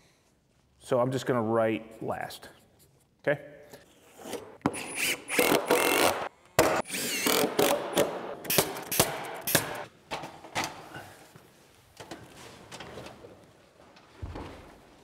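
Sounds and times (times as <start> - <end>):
power tool driving fasteners: 4.7 - 9.9.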